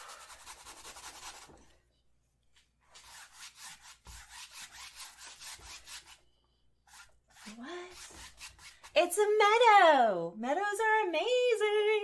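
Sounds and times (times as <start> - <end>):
paintbrush scrubbing canvas: 0.0 - 1.8, 2.5 - 9.1.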